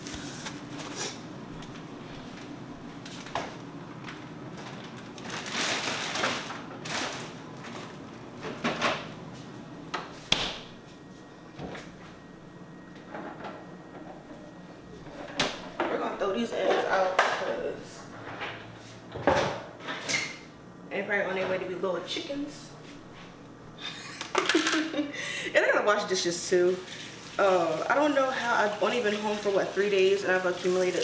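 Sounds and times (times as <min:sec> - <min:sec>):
food packages rustling: 0:00.0 - 0:01.3, 0:04.0 - 0:08.3
refrigerator doors opening and closing: 0:04.5 - 0:09.2, 0:09.9 - 0:10.8.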